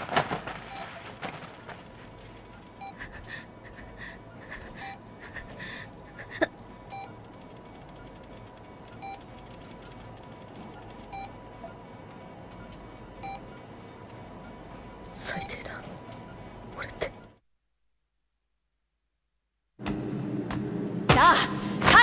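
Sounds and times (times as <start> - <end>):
heart monitor beeping: 0.5 - 1.8, 2.4 - 17.4
boy panting heavily: 3.0 - 5.9.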